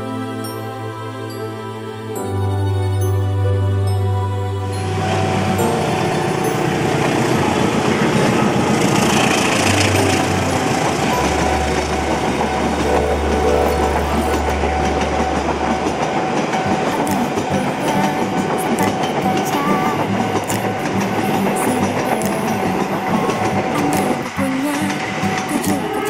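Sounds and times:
diesel locomotive passing: 1.3 - 26.0
train coaches rumbling: 2.3 - 26.0
wheels clicking over rail joints: 5.9 - 26.0.

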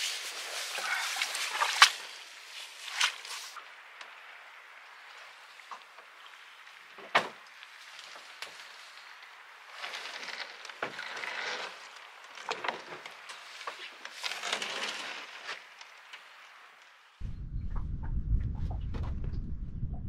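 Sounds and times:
gear rustling and scraping: 7.8 - 16.3.

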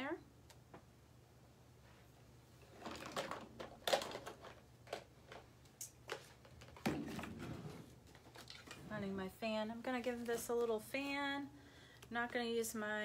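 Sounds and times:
craft supplies rustling and clattering: 2.6 - 9.1.

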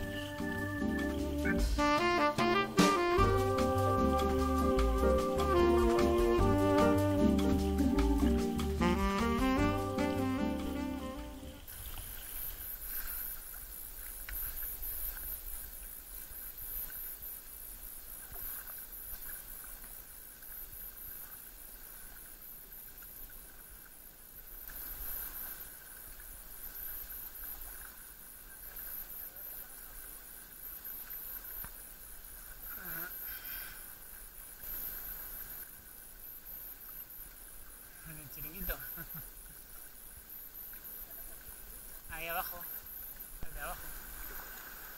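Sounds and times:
paddle strokes in water: 11.4 - 44.9.

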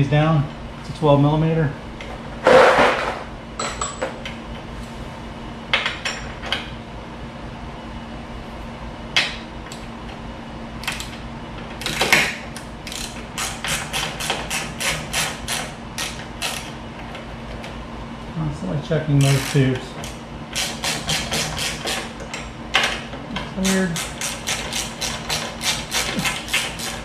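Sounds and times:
ratchet wrench clicking: 12.8 - 16.7, 19.2 - 22.0, 23.7 - 27.0.

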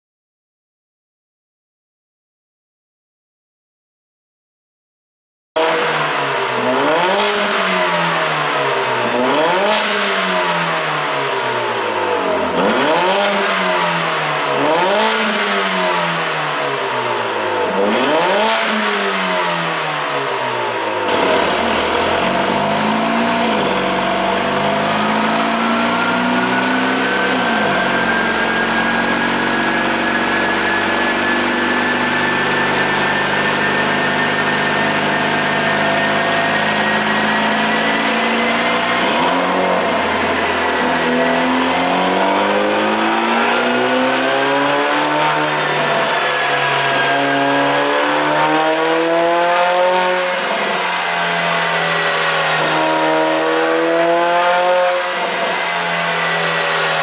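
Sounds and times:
car engine revving: 5.6 - 57.0
rising whine on a dyno: 5.6 - 57.0.

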